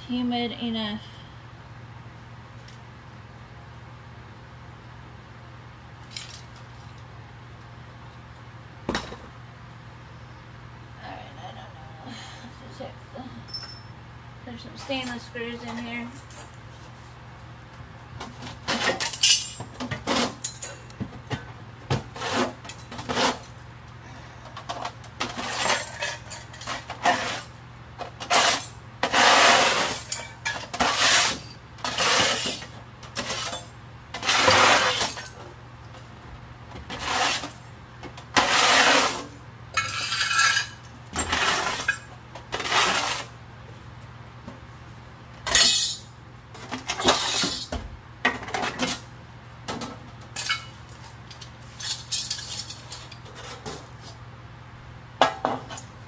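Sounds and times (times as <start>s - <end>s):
metal scrap clinking and scraping: 18.6s - 20.9s, 25.2s - 27.6s, 28.2s - 35.4s, 38.4s - 43.3s, 45.4s - 47.8s, 50.3s - 53.9s.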